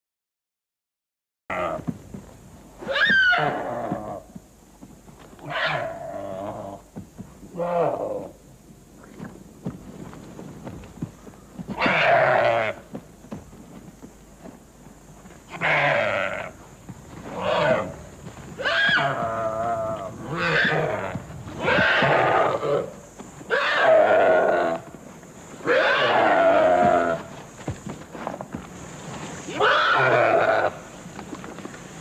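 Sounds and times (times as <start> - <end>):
goat bleating in distress: 11.8 - 12.8.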